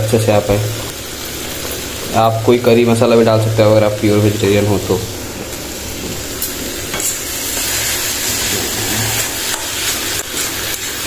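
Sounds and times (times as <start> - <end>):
frying sizzle: 0.0 - 11.0
spatula scraping a pan: 6.9 - 11.0.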